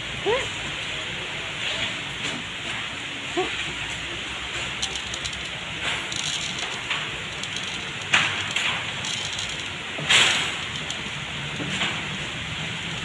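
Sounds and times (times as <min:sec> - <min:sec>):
plastic bag crinkling: 0:04.6 - 0:11.7
kibble pattering on wood: 0:04.6 - 0:12.2.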